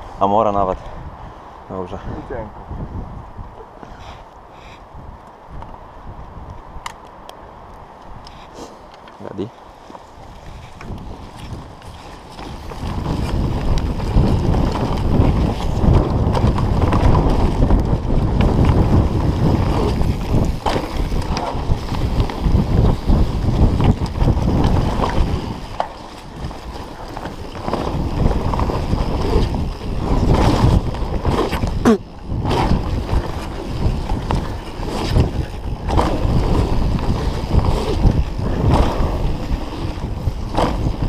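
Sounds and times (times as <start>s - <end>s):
wind rushing over microphone: 0.0s - 41.0s
tyre rumble: 10.4s - 41.0s
bike knocking over bumps: 11.5s - 41.0s.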